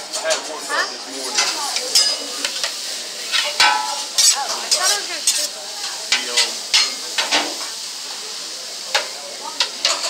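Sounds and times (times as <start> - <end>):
food sizzling: 0.0 - 10.0
steel spatula clinking on griddle: 1.3 - 5.5, 6.1 - 7.4, 8.9 - 10.0.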